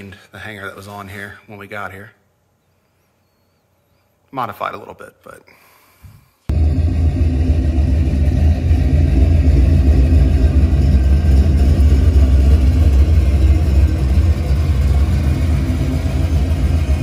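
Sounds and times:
deep car exhaust rumble: 6.5 - 17.0.

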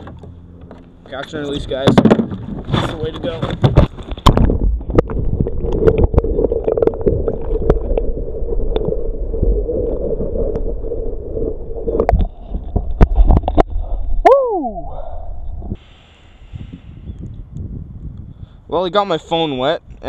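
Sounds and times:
muffled underwater rush: 2.4 - 15.8
water splashing: 3.9 - 13.9
man exclaiming whoo: 14.2 - 15.0.

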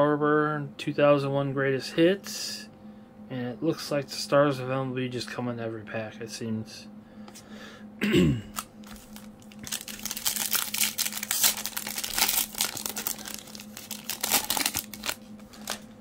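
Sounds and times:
plastic wrapper crinkling and tearing: 8.5 - 16.0.

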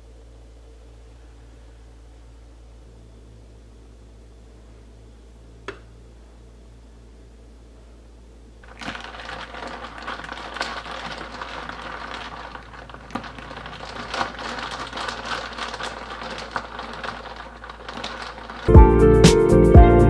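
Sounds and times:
spoon stirring wet crackling: 8.6 - 18.7.

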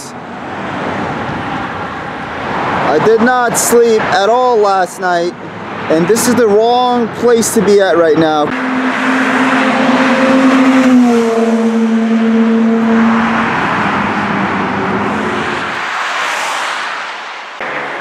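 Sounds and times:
traffic and tyre noise: 0.0 - 18.0
sports car passing: 8.5 - 18.0.

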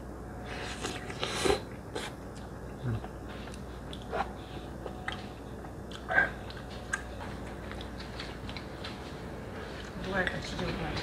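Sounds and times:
wet chewing: 0.8 - 9.0.

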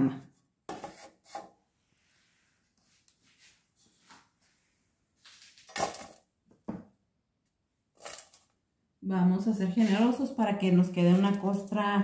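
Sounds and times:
faint handling sounds: 0.8 - 6.2
crumb mixture rustling: 7.9 - 8.6, 9.6 - 12.0.

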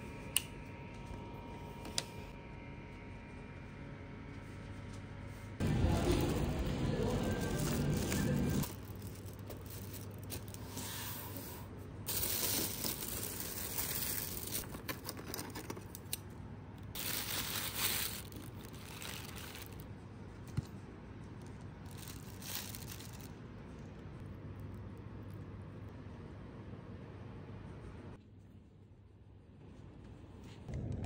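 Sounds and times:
rustling and crinkling handling: 5.8 - 10.8, 12.1 - 16.2, 17.0 - 23.8.

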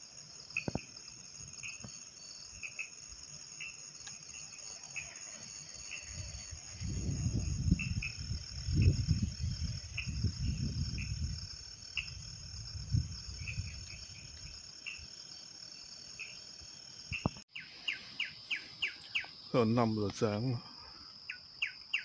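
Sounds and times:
crickets trilling: 0.0 - 22.0
short insect chirps: 0.0 - 22.0
wind rumble on microphone: 6.0 - 14.6.

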